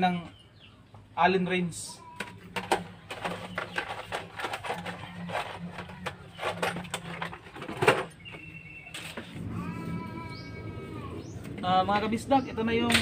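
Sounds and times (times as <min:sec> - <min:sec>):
tools clattering: 0:02.2 - 0:08.2.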